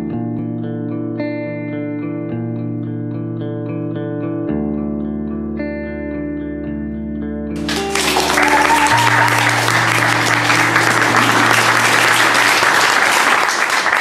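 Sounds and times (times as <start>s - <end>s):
guitar background music: 0.0s - 13.0s
audience applause: 7.6s - 14.0s.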